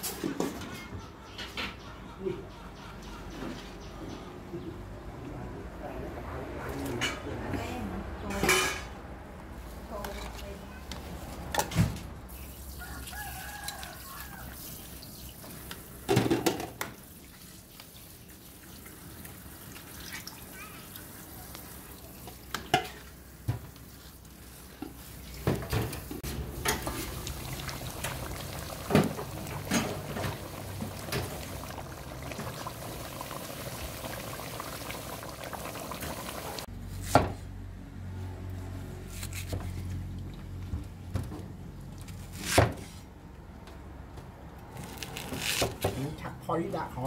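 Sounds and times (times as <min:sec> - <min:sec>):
broth simmering: 0:16.9 - 0:36.7.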